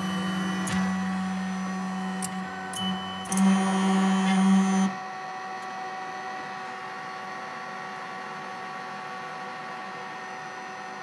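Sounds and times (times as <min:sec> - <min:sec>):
stepper motors whining: 0:00.0 - 0:05.0
steady hum: 0:00.0 - 0:11.0.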